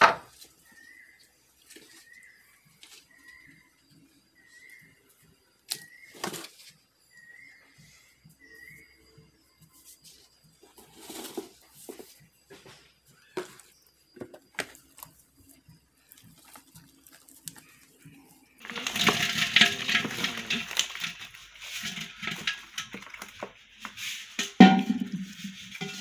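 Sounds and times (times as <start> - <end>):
fish flapping in plastic tub: 18.6 - 26.0.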